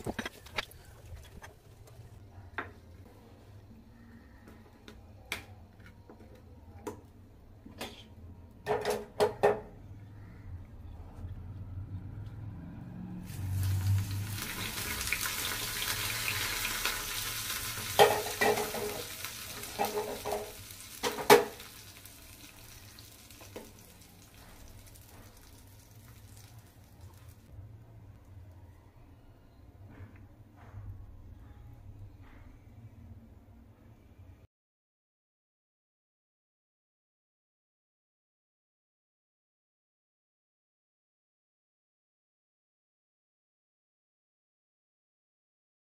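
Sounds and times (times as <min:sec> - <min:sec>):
hot oil sizzling: 0:13.2 - 0:27.5
metal pan clinking on bowl: 0:18.0 - 0:19.0.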